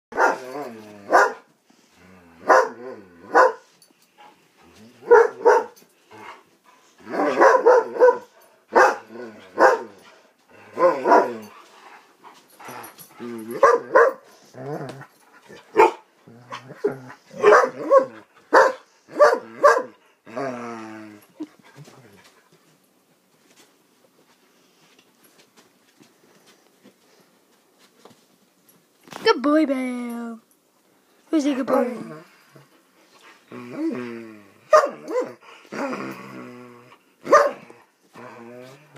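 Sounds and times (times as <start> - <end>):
dogs barking: 0.1 - 0.5, 1.1 - 1.4, 2.4 - 3.6, 5.0 - 5.8, 7.1 - 9.9, 13.6 - 14.2, 15.7 - 16.0, 17.4 - 20.0, 34.7 - 35.4, 37.2 - 37.6.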